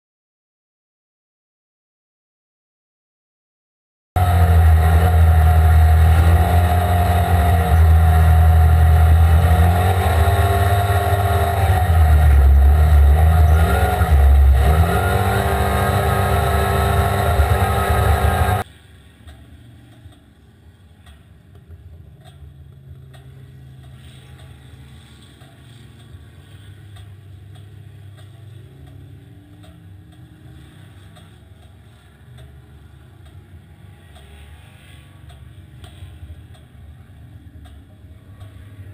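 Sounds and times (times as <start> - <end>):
off-road vehicle engine revving: 4.2 - 18.7.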